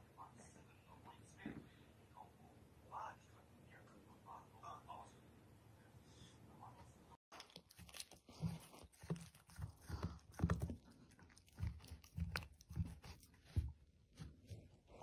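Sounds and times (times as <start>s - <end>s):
puppy gnawing on a chew: 7.3s - 14.6s.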